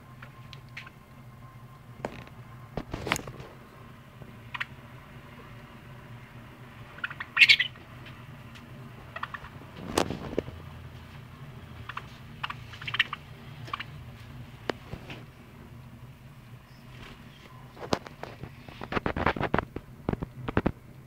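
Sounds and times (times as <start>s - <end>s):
budgerigar chirping: 4.5s - 4.8s, 6.9s - 7.8s, 9.1s - 9.6s, 11.8s - 14.0s.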